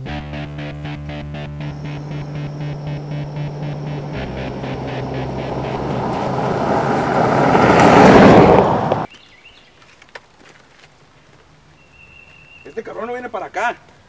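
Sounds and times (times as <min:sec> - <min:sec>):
music with a beat: 0:00.0 - 0:06.0
vehicle speeding on dirt road: 0:00.6 - 0:09.1.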